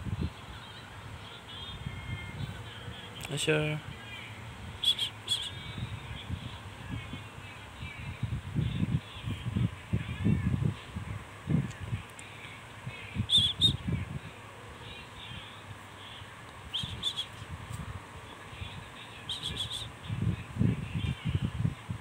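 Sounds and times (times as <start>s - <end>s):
short high-pitched chirps: 16.7s - 17.4s.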